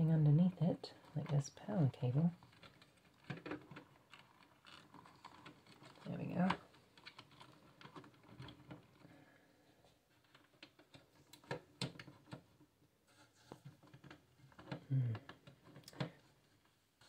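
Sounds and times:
hands handling cables in metal case: 0:02.0 - 0:09.2.

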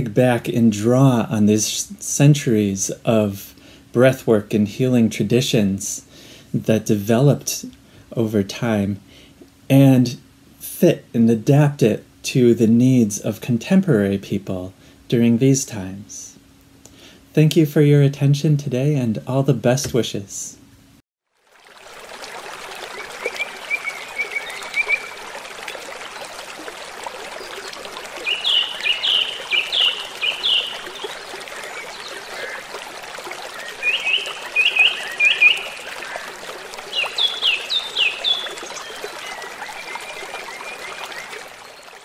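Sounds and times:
water trickling: 0:21.3 - 0:42.0
small birds chirping: 0:23.0 - 0:25.3, 0:27.3 - 0:42.0.

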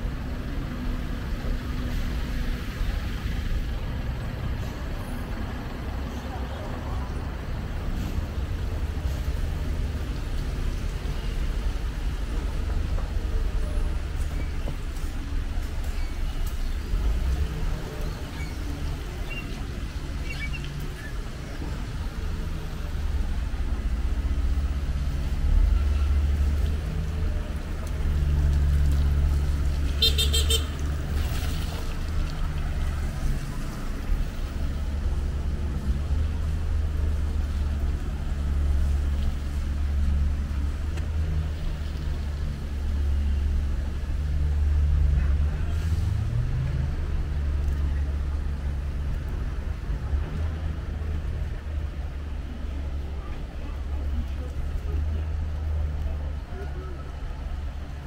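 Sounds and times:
street traffic: 0:00.0 - 0:58.0
vehicle horn beep: 0:30.0 - 0:30.8.

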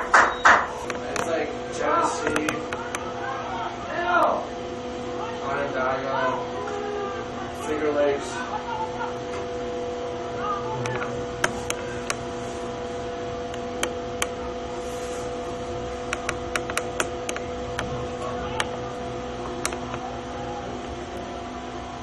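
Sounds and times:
electrical hum: 0:00.0 - 0:22.0
sharp clicks: 0:16.1 - 0:17.9, 0:19.6 - 0:20.0.

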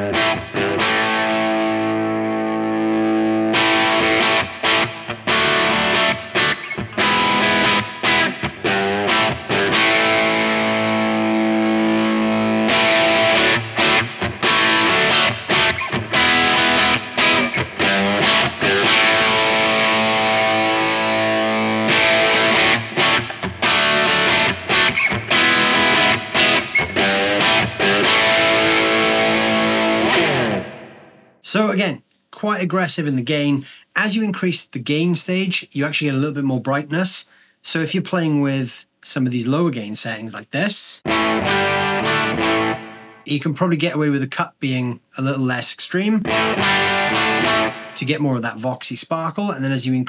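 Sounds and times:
distorted electric guitar chords: 0:00.0 - 0:31.4, 0:41.0 - 0:43.3, 0:46.2 - 0:48.0.

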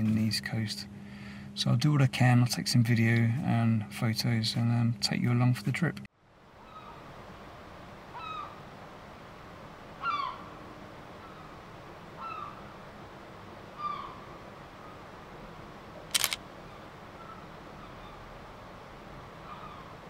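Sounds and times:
seagulls calling: 0:06.6 - 0:07.0, 0:08.1 - 0:08.6, 0:10.0 - 0:10.5, 0:12.2 - 0:12.6, 0:13.8 - 0:14.3, 0:19.4 - 0:20.0
camera shutter click: 0:16.1 - 0:16.4.

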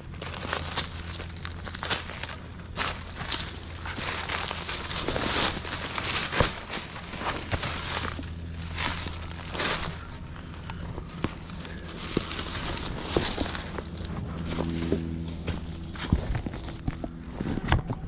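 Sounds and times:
sharp crackles: 0:00.0 - 0:14.1
footsteps crunching through dry ground: 0:00.0 - 0:18.0.

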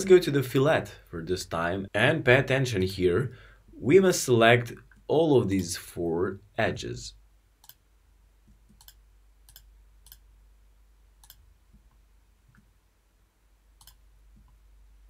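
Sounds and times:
computer mouse clicking: 0:07.6 - 0:07.8, 0:08.5 - 0:10.2, 0:11.2 - 0:11.9, 0:13.8 - 0:14.6.

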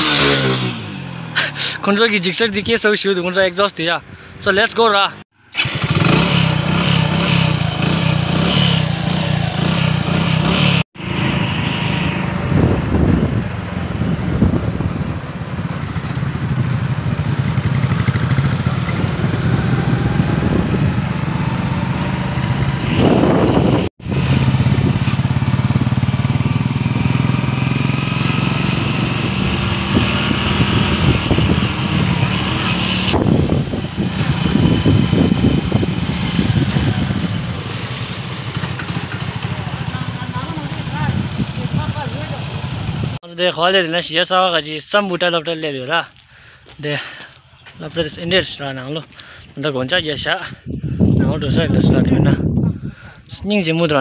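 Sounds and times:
motorcycle engine running: 0:05.5 - 0:43.2.

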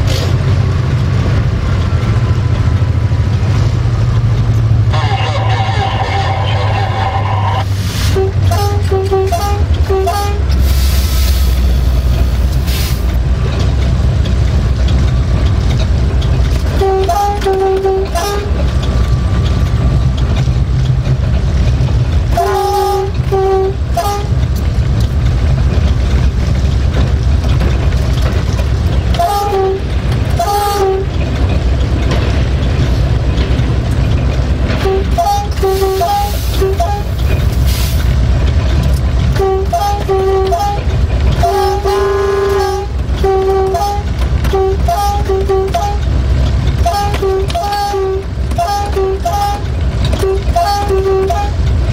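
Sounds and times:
locomotive engine running: 0:00.0 - 0:51.9
locomotive horn short blasts: 0:08.1 - 0:10.5, 0:16.8 - 0:18.6, 0:22.3 - 0:24.3, 0:29.2 - 0:31.1, 0:34.8 - 0:37.2, 0:39.4 - 0:46.1, 0:46.8 - 0:51.6.

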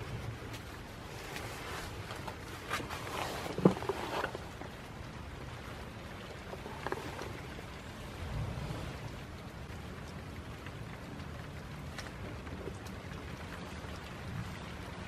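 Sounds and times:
rustling: 0:00.0 - 0:05.0, 0:05.6 - 0:09.1
steady low rumble: 0:04.5 - 0:15.0.

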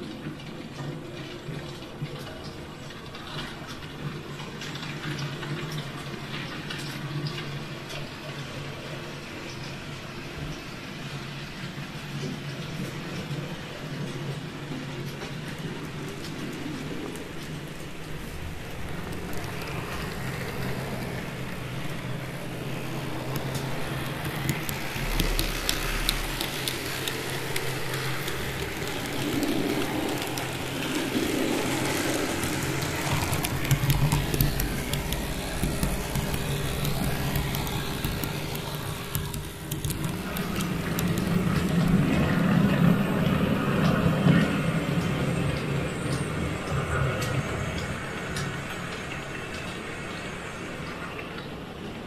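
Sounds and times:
model train wheels clicking: 0:15.0 - 0:46.3
small electric motors humming: 0:16.8 - 0:43.8.

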